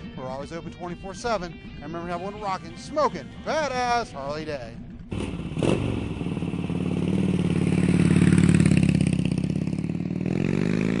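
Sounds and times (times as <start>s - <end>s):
motorcycle engine running: 4.8s - 11.0s
motorcycle starting bang: 4.9s - 10.0s.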